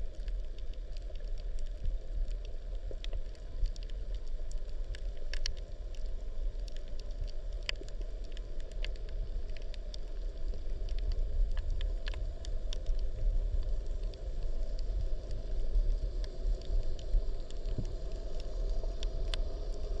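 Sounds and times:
low underwater rumble: 0:00.0 - 0:20.0
sharp clicks and crackles: 0:00.1 - 0:20.0.

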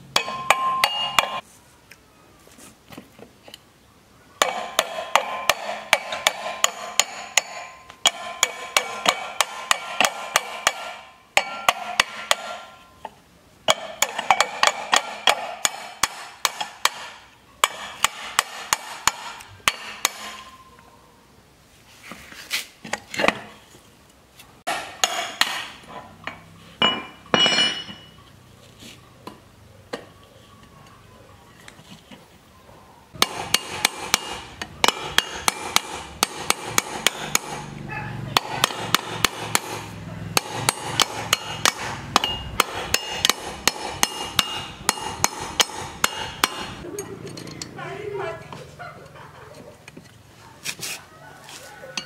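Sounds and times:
hammer striking metal: 0:00.1 - 0:01.4, 0:04.4 - 0:12.9, 0:13.7 - 0:20.5, 0:24.7 - 0:28.2, 0:33.2 - 0:46.8.

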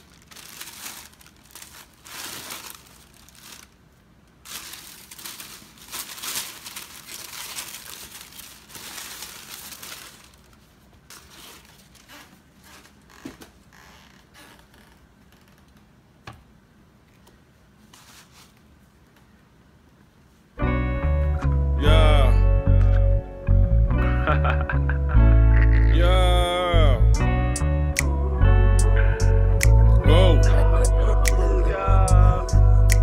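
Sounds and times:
tissue paper rustling and crinkling: 0:00.0 - 0:13.2, 0:17.9 - 0:18.6.

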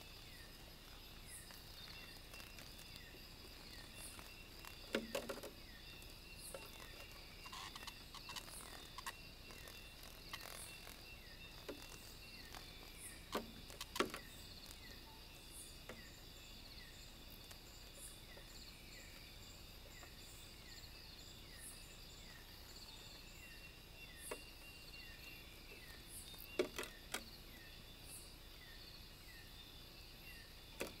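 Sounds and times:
insects trilling: 0:00.0 - 0:31.0.

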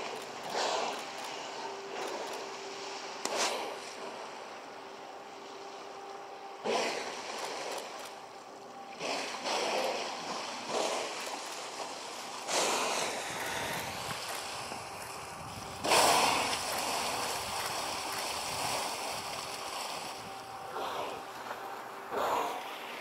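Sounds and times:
moving water: 0:00.0 - 0:23.0
killer whales exhaling: 0:00.4 - 0:02.4, 0:06.6 - 0:07.8, 0:08.9 - 0:11.5, 0:12.4 - 0:14.4, 0:15.8 - 0:17.9, 0:20.6 - 0:23.0.

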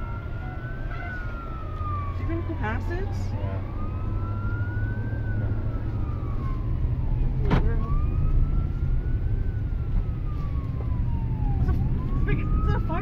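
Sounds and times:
emergency siren wailing: 0:00.0 - 0:13.0
road and engine rumble: 0:00.0 - 0:13.0.

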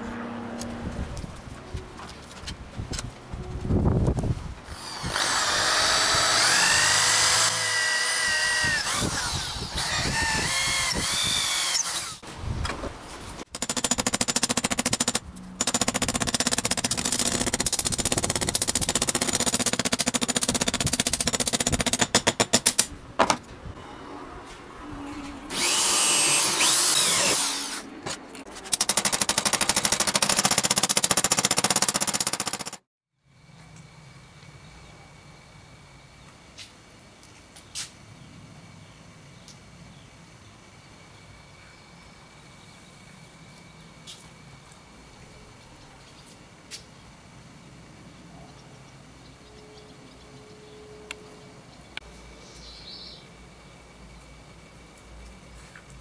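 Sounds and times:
power grinder on metal: 0:04.7 - 0:12.2, 0:25.5 - 0:27.8.

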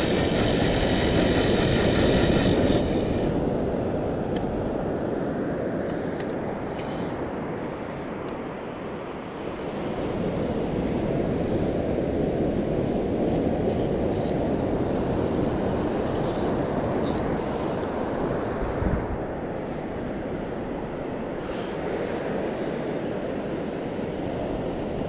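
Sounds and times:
wind on microphone: 0:00.0 - 0:08.2, 0:09.8 - 0:25.0.

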